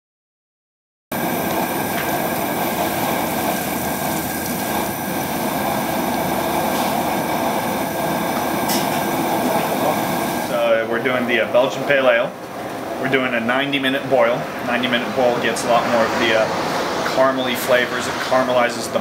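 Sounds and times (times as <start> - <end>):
liquid boiling: 1.1 - 13.1
gas burner roaring: 1.1 - 19.0.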